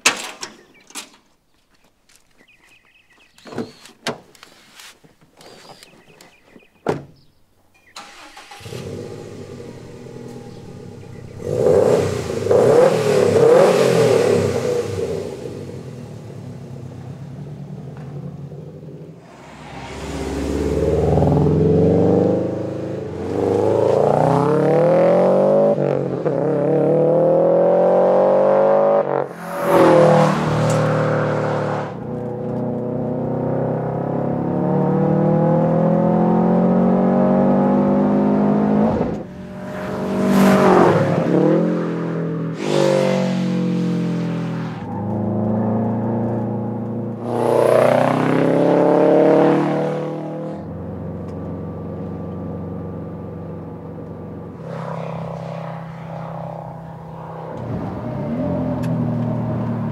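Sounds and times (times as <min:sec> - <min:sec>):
car engine idling: 0:07.9 - 0:12.6
car accelerating through gears: 0:08.0 - 0:59.9
car engine revving: 0:08.0 - 0:59.9.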